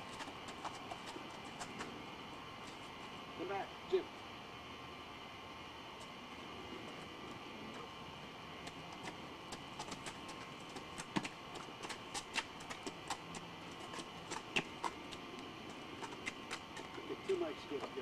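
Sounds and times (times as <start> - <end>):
faint steady hum: 0.0 - 18.0
footsteps on concrete: 8.6 - 18.0.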